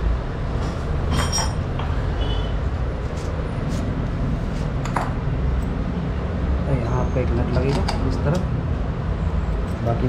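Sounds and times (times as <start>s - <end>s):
metal engine parts clinking: 1.0s - 2.4s.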